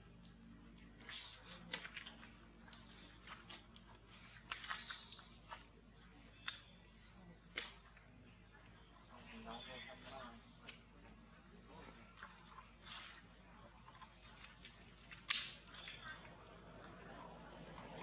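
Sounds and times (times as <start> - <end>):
soft clicks and wet smacks: 1.6 - 6.9, 7.5 - 8.8, 10.1 - 12.8.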